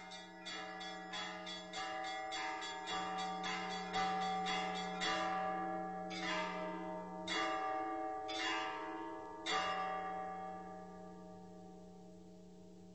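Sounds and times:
church bells ringing: 0.0s - 12.0s.

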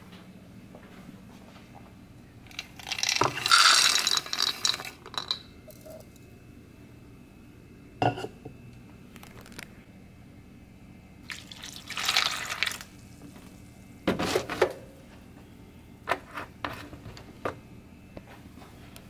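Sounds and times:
kibble rattling into ceramic bowl: 2.5s - 5.9s.

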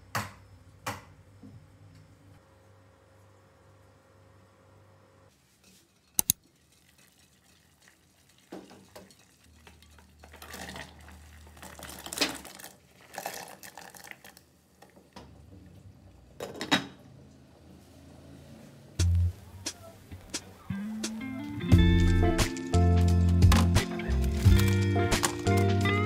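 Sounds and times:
vegetables clattering into glass pot: 23.5s - 25.7s.

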